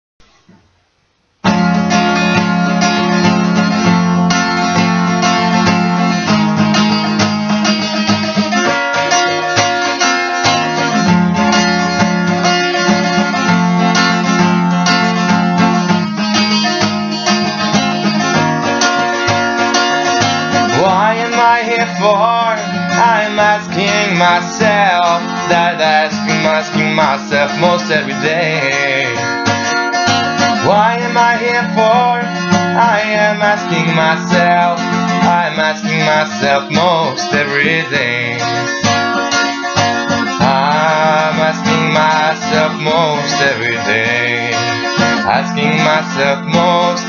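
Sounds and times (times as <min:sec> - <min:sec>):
acoustic guitar chords: 0:00.2 - 0:47.0
person singing: 0:20.6 - 0:29.8, 0:30.5 - 0:47.0.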